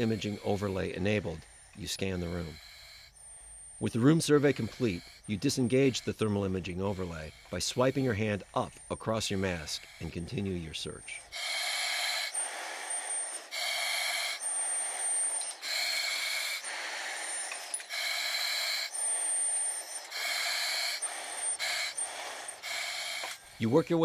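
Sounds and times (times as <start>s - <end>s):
hissing breaths through a regulator: 0.0s - 24.0s.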